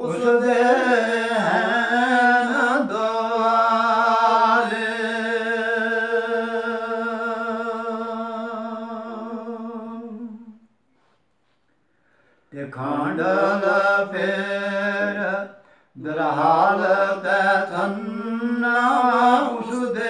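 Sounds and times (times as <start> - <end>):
man singing unaccompanied: 0.0 - 10.6, 12.5 - 20.0.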